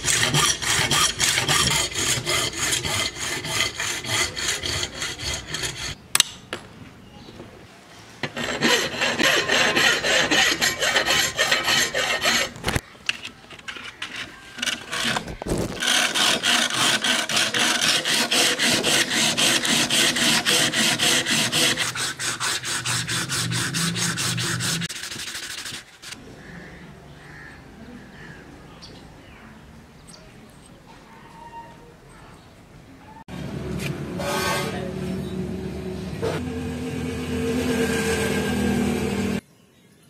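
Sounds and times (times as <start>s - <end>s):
file rasping on brass: 0.0s - 6.0s, 8.2s - 12.6s, 15.8s - 26.2s
sandpaper rubbing steel blade: 0.0s - 6.0s, 8.2s - 12.6s, 14.0s - 26.2s.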